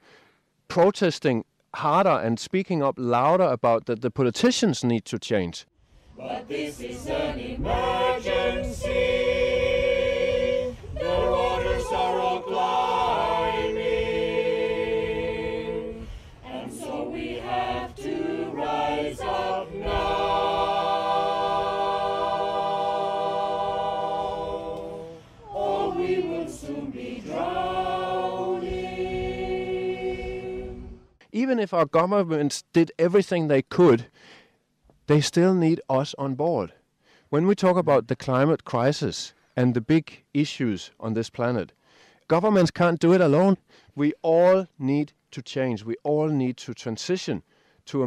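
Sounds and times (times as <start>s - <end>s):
choir singing long chords: 6.2s - 31.1s.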